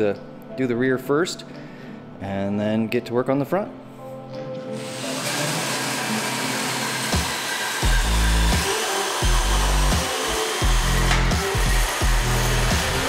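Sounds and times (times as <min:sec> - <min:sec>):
background music: 0:00.0 - 0:13.0
drill motor whirring: 0:04.8 - 0:13.0.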